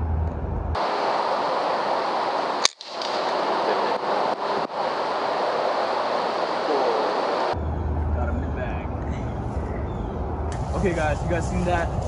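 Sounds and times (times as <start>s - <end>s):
steady hiss: 0.8s - 7.6s, 10.5s - 12.0s
air rifle shot: 2.6s - 3.7s.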